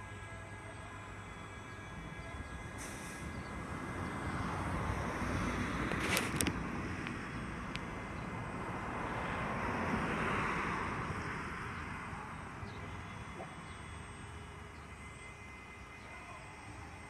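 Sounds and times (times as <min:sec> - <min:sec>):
car driving past: 0:02.8 - 0:15.0.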